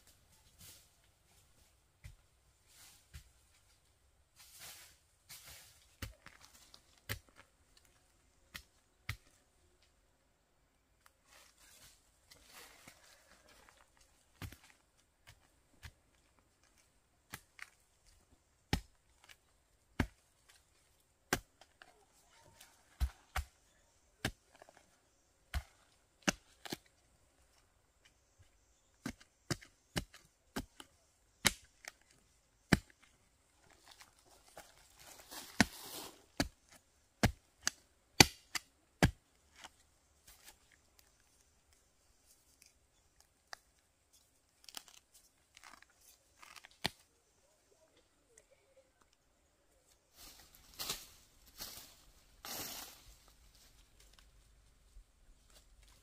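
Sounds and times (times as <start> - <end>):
earth and dry leaves scraping: 4.4 - 7.4, 11.2 - 15.4, 33.6 - 36.8, 50.1 - 54.4
digging tool chopping into soil: 22.9 - 23.6, 25.5 - 26.9, 29.0 - 32.0, 32.6 - 33.1, 36.4 - 39.7.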